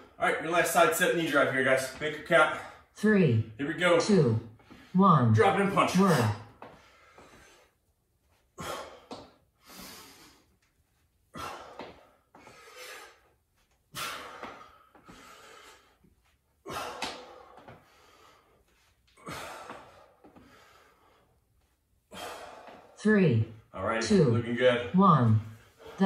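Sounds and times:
man breathing out hard: 0:08.6 - 0:10.5, 0:11.3 - 0:13.3, 0:13.9 - 0:16.0, 0:16.6 - 0:18.6, 0:19.2 - 0:21.4, 0:22.1 - 0:23.0.

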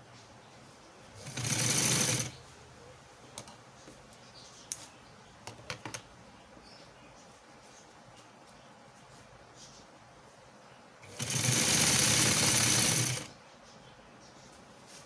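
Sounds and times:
sewing machine stitching: 0:01.2 - 0:02.4, 0:11.0 - 0:13.3.

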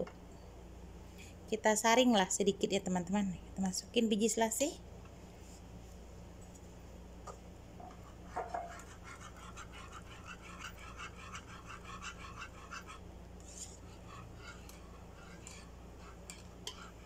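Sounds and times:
low steady hum: 0:00.0 - 0:17.0
whisk ticking against pan: 0:07.8 - 0:17.0
thick mixture squelching: 0:08.7 - 0:17.0.

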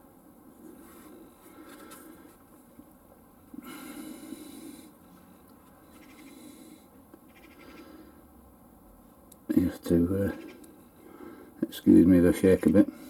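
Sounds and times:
faint breathing: 0:03.6 - 0:05.3, 0:06.0 - 0:08.3, 0:11.0 - 0:11.6.

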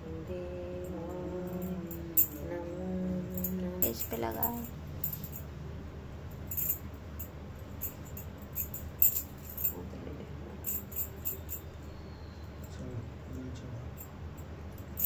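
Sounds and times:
low steady hum: 0:00.0 - 0:15.0
glass bangles clinking: 0:01.5 - 0:02.4, 0:03.3 - 0:05.4, 0:06.5 - 0:09.8, 0:10.6 - 0:11.7.

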